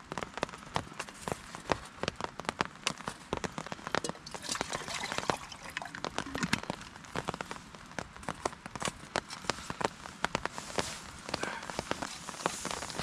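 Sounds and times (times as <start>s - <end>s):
rain drops ticking on a tarp: 0.0s - 13.0s
steady hiss of rain: 0.0s - 13.0s.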